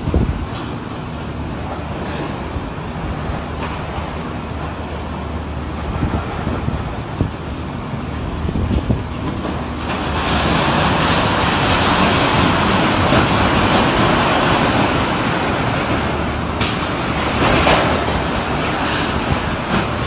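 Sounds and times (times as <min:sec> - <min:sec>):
wind roaring: 0:00.0 - 0:20.0.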